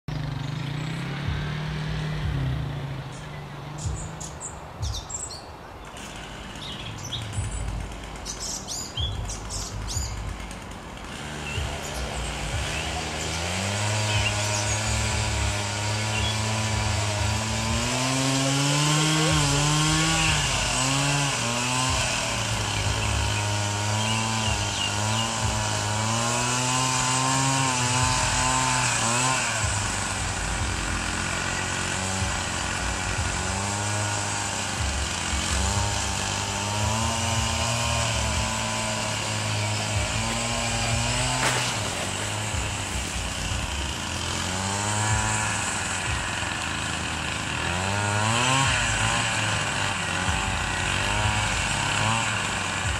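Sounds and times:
small engine running: 0:00.0 - 0:52.9.

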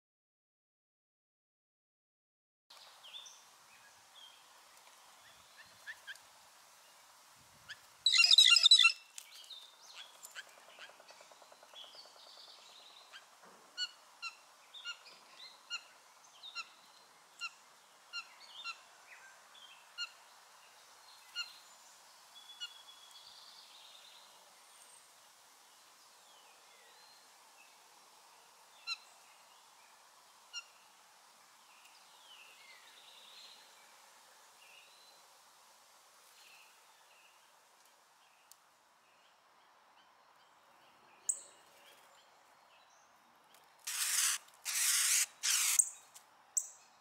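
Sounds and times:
blue jay call: 0:08.1 - 0:09.0, 0:43.9 - 0:46.0.

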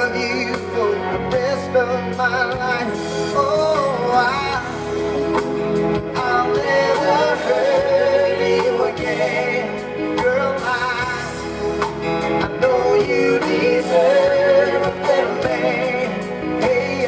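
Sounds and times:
soul band playing: 0:00.0 - 0:17.0
man singing long notes: 0:06.0 - 0:11.6, 0:12.3 - 0:17.0.

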